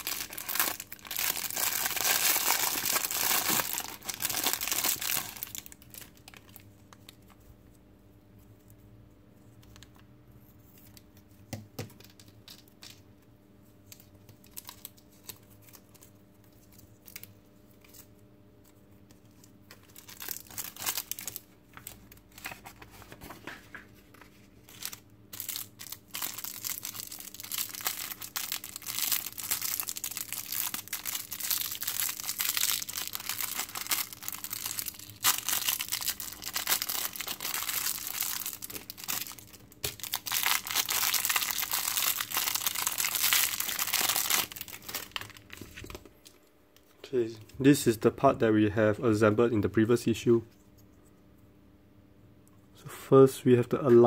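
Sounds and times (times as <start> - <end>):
plastic bag crinkling: 0.0 - 7.2, 19.8 - 23.3, 24.7 - 46.4.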